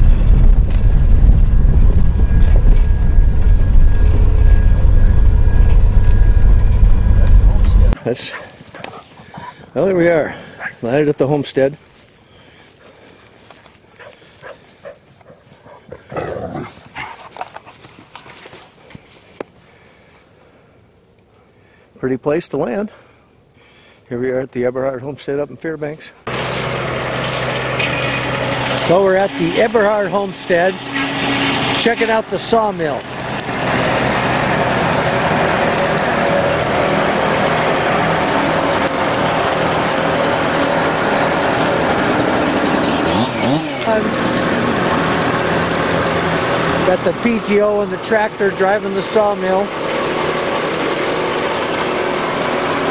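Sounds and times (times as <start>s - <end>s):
tractor engine running: 0.0s - 8.0s, 26.3s - 52.9s
circular saw spinning: 26.3s - 52.9s.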